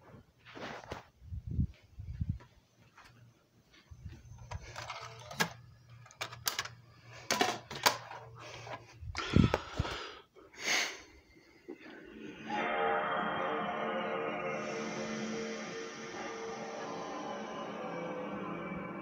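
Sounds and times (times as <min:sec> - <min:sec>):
phone handling clicks and rustles: 0:04.3 - 0:08.9.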